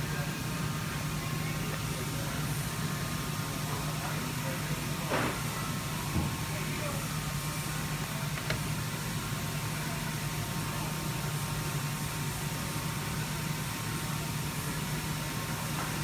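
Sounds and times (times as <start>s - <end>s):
workshop machinery hum: 0.0s - 16.0s.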